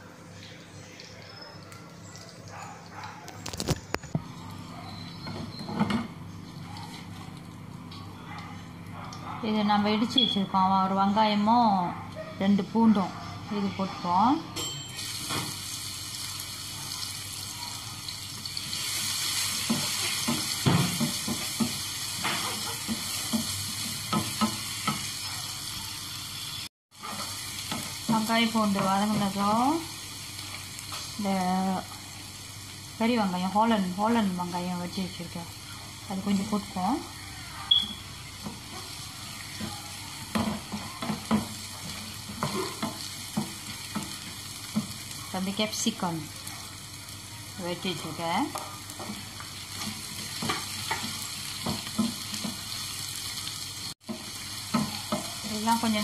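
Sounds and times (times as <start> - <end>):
onion and garlic sizzling in oil: 13.6 - 56.0.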